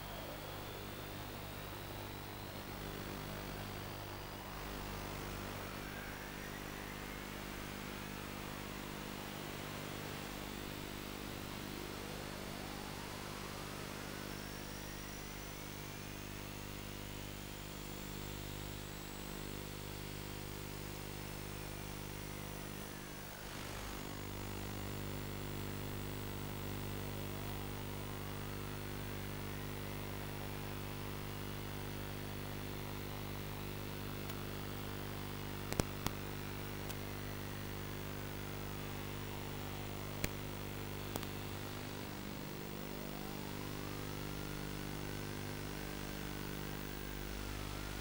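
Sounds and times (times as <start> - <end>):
electrical hum and buzz: 0.0 - 48.0
whistling tones sliding in pitch: 4.4 - 10.2.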